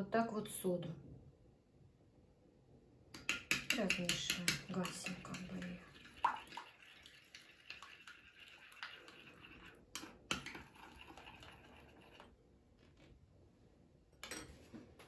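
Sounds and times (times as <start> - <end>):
metal spoon clinking glass bowl: 3.2 - 5.8.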